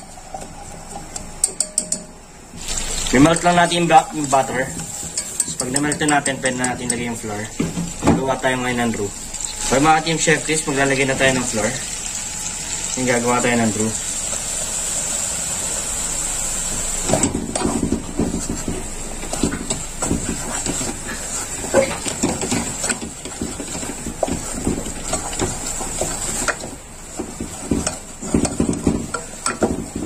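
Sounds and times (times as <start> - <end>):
butter sizzling in a saucepan: 2.6 - 6.7, 9.1 - 30.0
wooden spatula scraping a pot: 17.5 - 30.0.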